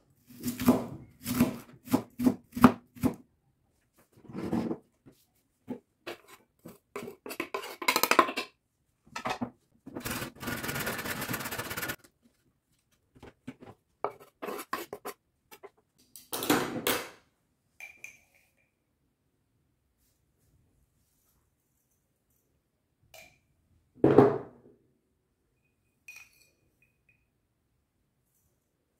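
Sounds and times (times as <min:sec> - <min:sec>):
vegetables scraped off cutting board: 0:10.0 - 0:12.0.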